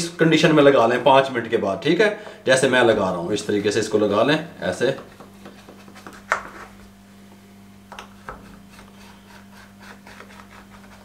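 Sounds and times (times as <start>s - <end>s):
knife scraping in steel tray: 8.1s - 11.0s.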